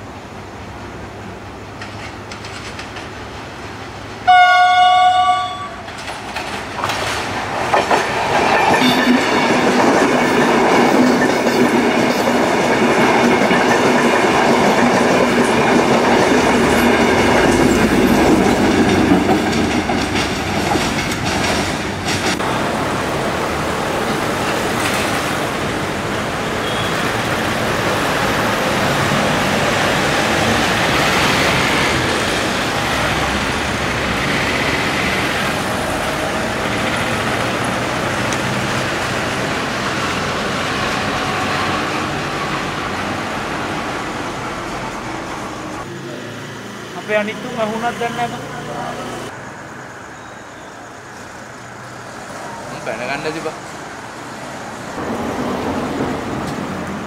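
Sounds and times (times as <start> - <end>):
train rumble and wheel clatter: 0.0 - 50.1, 50.8 - 57.0
train horn blast: 4.3 - 5.9.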